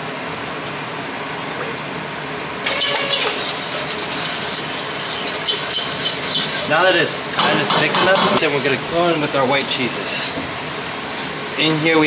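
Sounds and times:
whisk scraping metal pot: 0:02.7 - 0:08.4.

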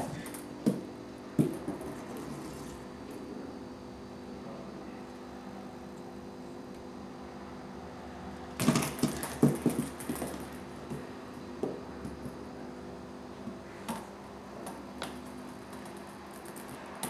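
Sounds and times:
knocks and scratches on cardboard: 0:08.6 - 0:12.4.

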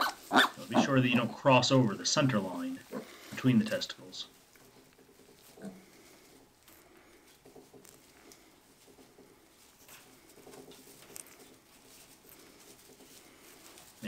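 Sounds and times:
piglet grunting and squeaking: 0:00.0 - 0:01.3, 0:02.8 - 0:03.4, 0:05.3 - 0:06.1.

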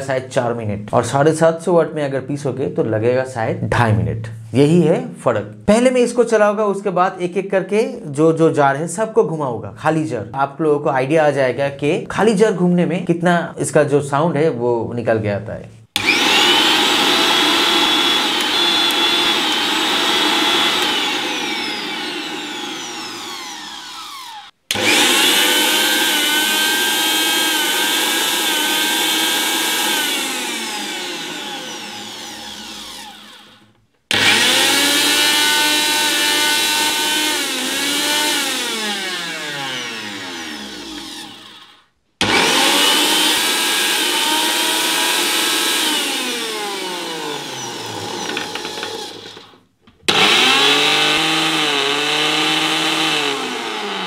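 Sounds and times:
mixer grinder motor whine: 0:16.0 - 0:54.0.

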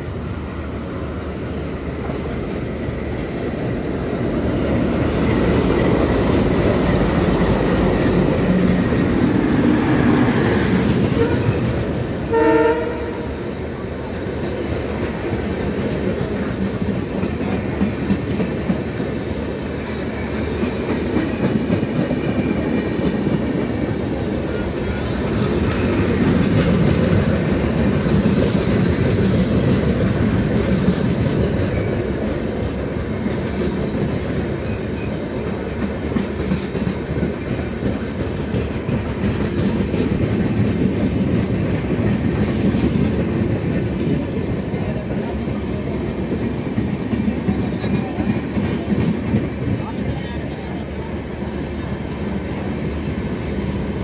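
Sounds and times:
train wheels rumbling on rails: 0:00.0 - 0:54.0
high wheel squeals: 0:19.6 - 0:20.4.

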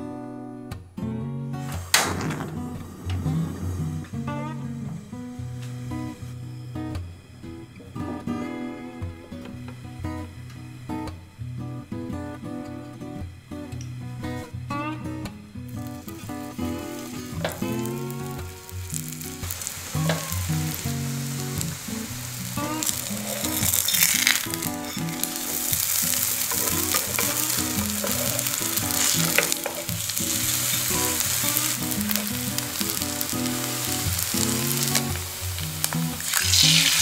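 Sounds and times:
soft guitar music: 0:00.0 - 0:37.0
food sizzling in hot oil: 0:11.9 - 0:37.0.

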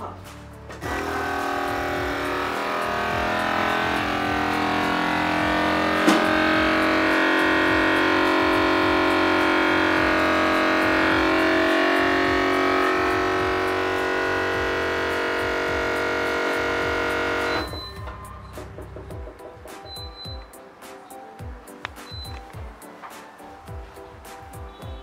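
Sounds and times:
background music with a beat: 0:00.0 - 0:25.0
vacuum sealer pump droning: 0:00.8 - 0:18.0.

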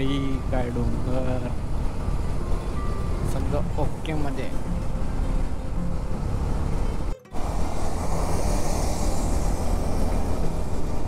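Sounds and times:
motorcycle cruising: 0:00.0 - 0:11.0
wind rushing over microphone: 0:06.2 - 0:11.0.

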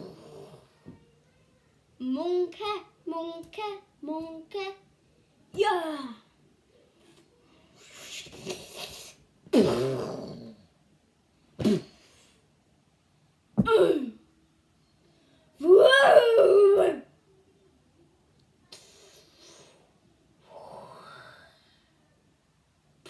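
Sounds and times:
child wailing: 0:15.6 - 0:17.0.

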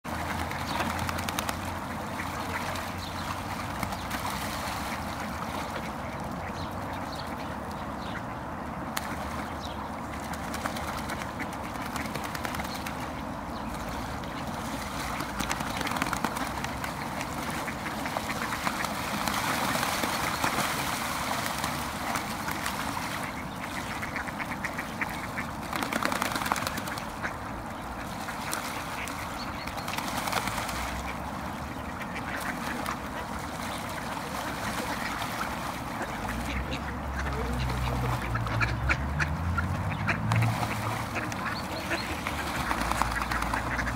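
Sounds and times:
ducks splashing in water: 0:00.0 - 0:43.9
ducks quacking: 0:10.1 - 0:20.7, 0:21.5 - 0:43.9.

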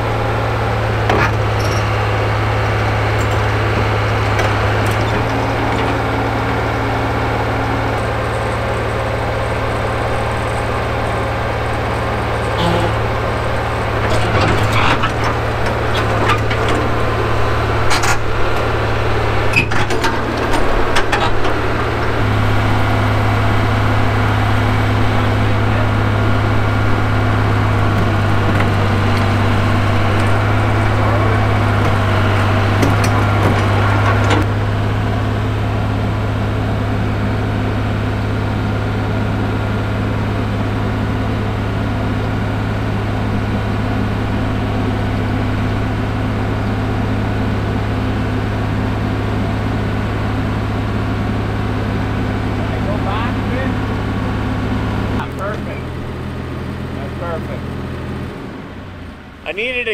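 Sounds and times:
excavator diesel engine running: 0:00.0 - 0:59.9
metal clanks and knocks: 0:02.8 - 0:06.2, 0:12.4 - 0:17.2, 0:19.5 - 0:22.2, 0:27.4 - 0:34.5.

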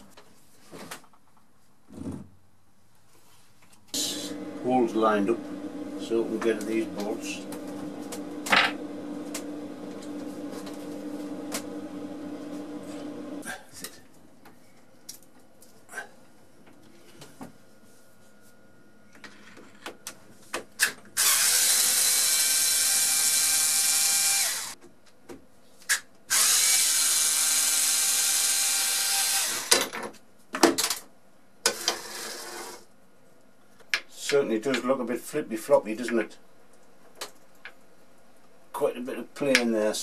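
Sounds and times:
cordless screwdriver whining: 0:21.2 - 0:24.8, 0:26.3 - 0:29.7.

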